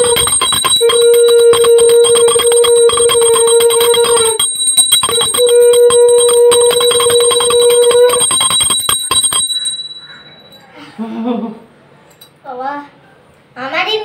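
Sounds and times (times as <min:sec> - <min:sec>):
bell rung rapidly: 0:00.0 - 0:10.7.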